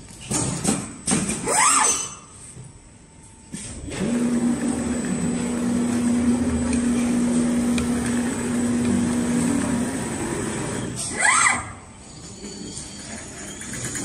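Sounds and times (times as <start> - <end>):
sewing machine motor hum: 3.9 - 11.0.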